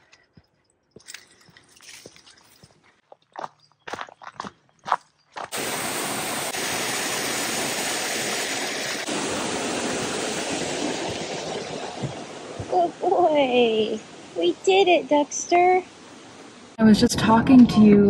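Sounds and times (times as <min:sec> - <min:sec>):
waterfall splashing into a pool: 0:05.5 - 0:13.2.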